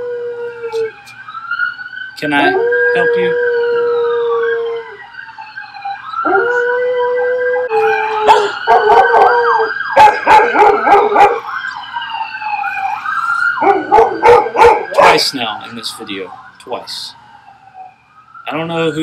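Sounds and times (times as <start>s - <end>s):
dogs howling: 0.0s - 0.9s, 2.3s - 5.1s, 6.2s - 11.6s, 12.4s - 15.7s
siren wailing: 0.0s - 19.0s
dogs yelping: 6.2s - 11.8s, 12.4s - 15.4s.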